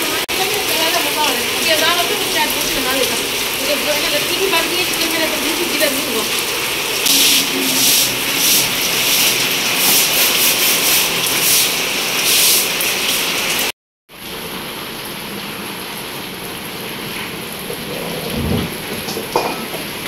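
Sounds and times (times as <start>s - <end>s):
heavy rain pouring: 0.0s - 20.0s
floor wiper and broom swishing water: 6.3s - 13.6s.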